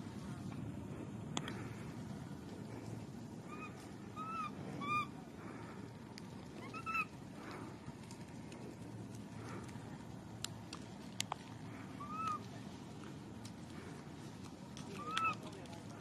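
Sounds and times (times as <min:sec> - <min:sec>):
infant monkey coo calls: 0:03.4 - 0:05.2, 0:06.6 - 0:07.2, 0:11.8 - 0:12.6, 0:14.9 - 0:15.6.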